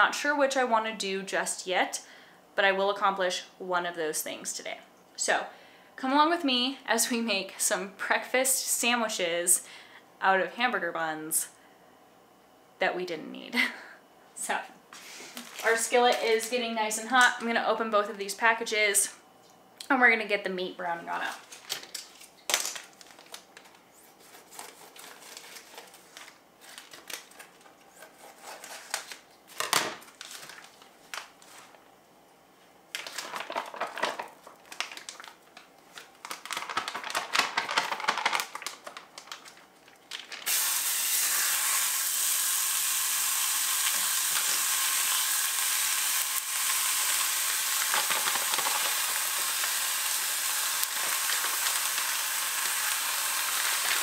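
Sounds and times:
plastic packaging crinkling and tearing: 21.3 - 31.8, 32.9 - 40.9, 43.8 - 54.0
sausage sizzling in a skillet: 40.4 - 54.0.

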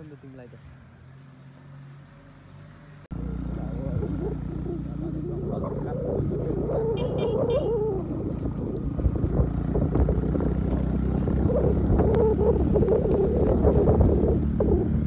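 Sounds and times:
motorcycle engine running: 3.1 - 15.0
wind buffeting microphone: 3.8 - 15.0.

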